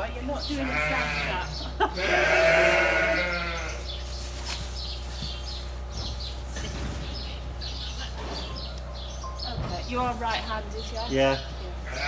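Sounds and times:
sheep bleating: 0.4s - 3.9s, 11.8s - 12.0s.

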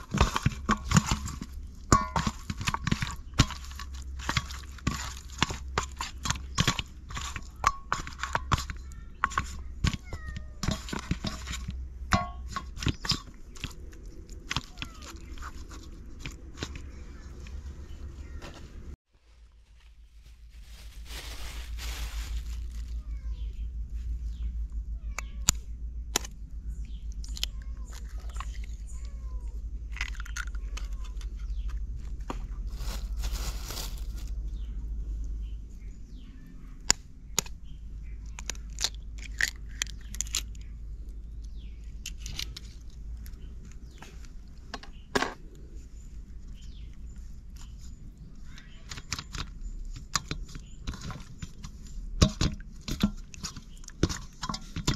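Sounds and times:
steady low rumble: 10.9s - 48.4s
plastic bag rustling: 14.6s - 23.5s, 32.4s - 34.6s.

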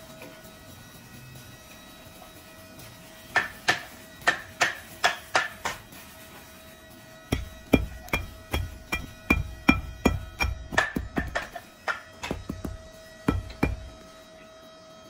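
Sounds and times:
knocks on wooden block: 7.3s - 14.0s.

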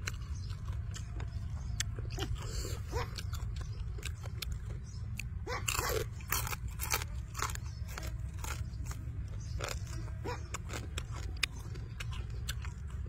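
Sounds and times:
man chewing crispy chicken: 0.0s - 13.0s.

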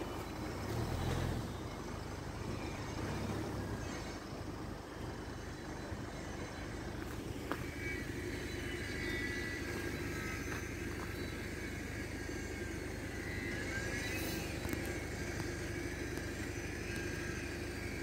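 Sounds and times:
faint wavering high tone: 5.3s - 18.0s.

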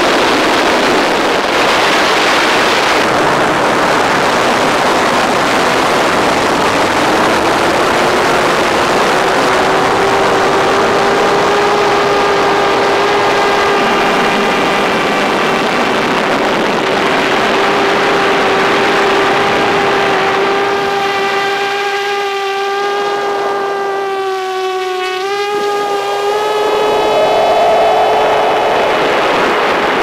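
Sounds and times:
drone motors whining: 25.5s - 30.0s.

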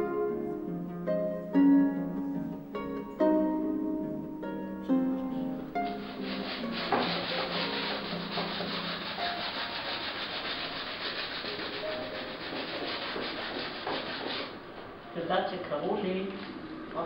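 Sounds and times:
hand rubbing on canvas: 5.8s - 14.6s.

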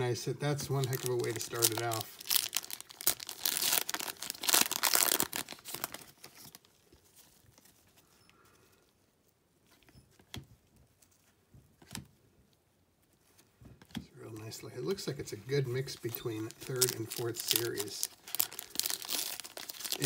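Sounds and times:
foil wrapper tearing and crinkling: 0.7s - 6.7s, 15.9s - 20.0s.

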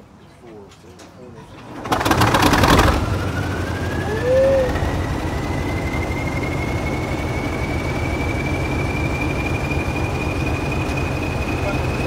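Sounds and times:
diesel locomotive engine rumble: 0.0s - 12.0s
turbocharger whistle: 2.6s - 12.0s.

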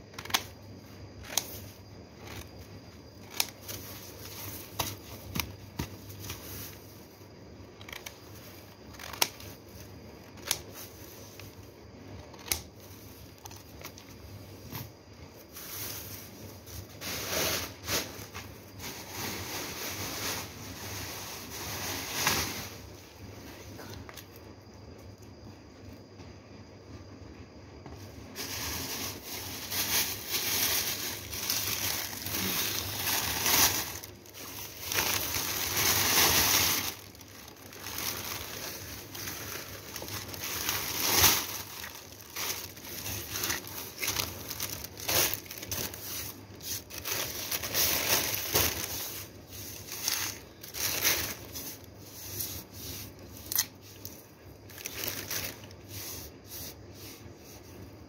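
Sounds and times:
plastic bag crinkling: 28.4s - 56.0s.

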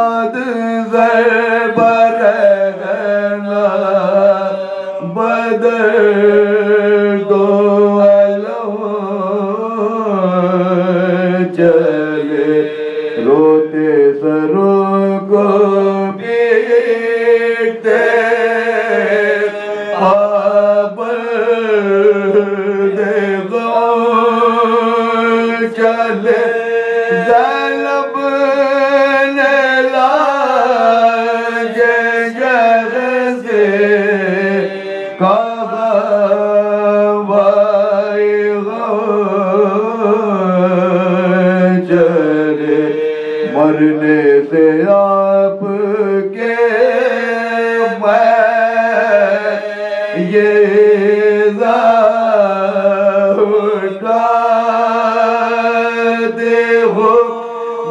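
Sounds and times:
men chanting a lament: 0.0s - 57.9s.

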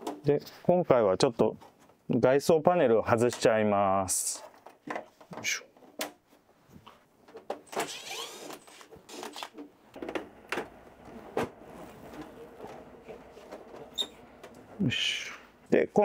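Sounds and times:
squeaking scrape: 7.6s - 9.6s, 11.7s - 14.4s.

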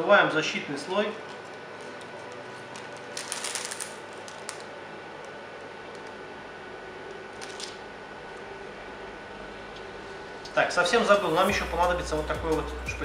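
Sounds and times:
plastic film crackling: 0.9s - 6.2s, 7.3s - 7.8s.

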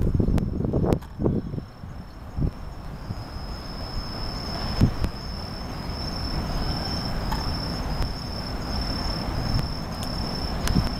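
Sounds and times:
crickets chirring: 0.0s - 10.9s
low constant rumble: 0.0s - 10.9s.

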